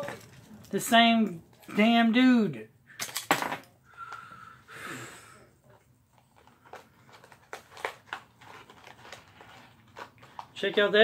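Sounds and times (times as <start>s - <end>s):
plastic packaging crinkling: 6.1s - 11.0s.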